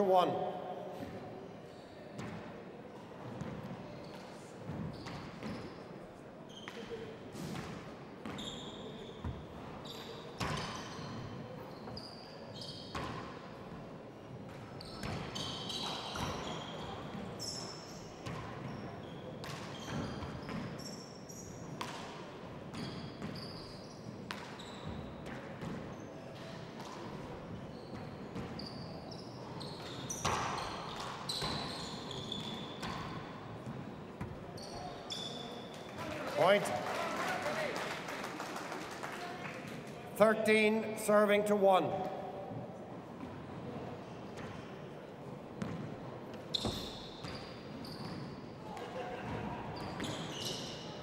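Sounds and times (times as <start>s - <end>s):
shoes squeaking on court floor: 0.6s - 36.7s, 40.2s - 51.0s.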